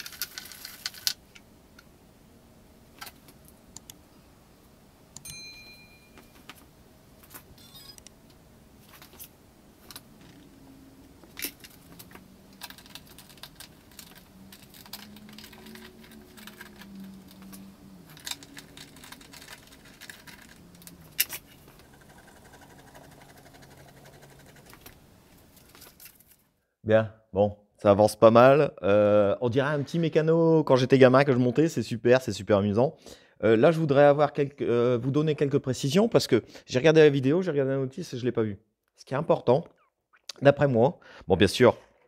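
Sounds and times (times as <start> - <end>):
metal parts clinking on wood: 11.3 - 21.6.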